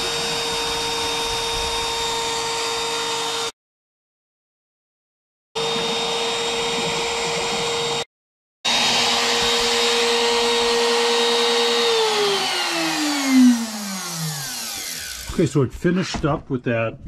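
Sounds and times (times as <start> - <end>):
router motor whining: 0.0 - 3.5, 5.6 - 8.1, 8.7 - 15.4
router spinning down: 0.0 - 3.5, 5.6 - 8.1, 8.7 - 15.6.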